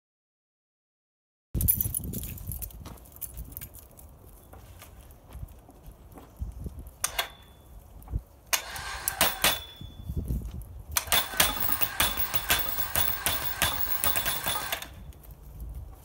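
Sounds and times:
electric winch running: 0:08.5 - 0:09.7, 0:11.0 - 0:15.0
clicks and rattles: 0:11.0 - 0:15.0.

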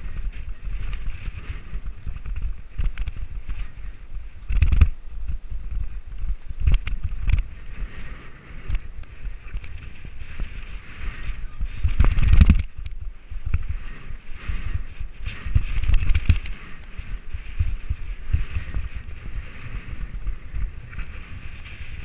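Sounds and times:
bike tyres rolling on dirt: 0:00.0 - 0:22.0
wind on microphone: 0:00.0 - 0:22.0
bike knocks and rattles: 0:04.5 - 0:07.5, 0:11.8 - 0:13.7.

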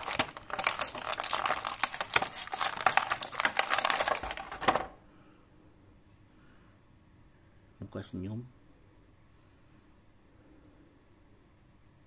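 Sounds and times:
plastic packaging crinkling: 0:00.0 - 0:05.0.

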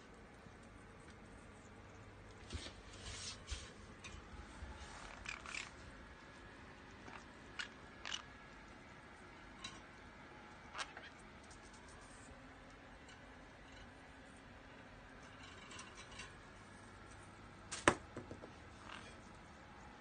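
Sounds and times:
parrot crunching apple: 0:05.0 - 0:05.8.

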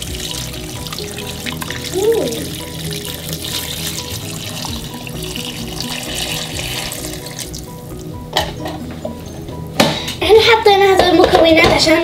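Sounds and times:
water pouring into a pot: 0:00.0 - 0:08.0
background music: 0:00.0 - 0:12.0.

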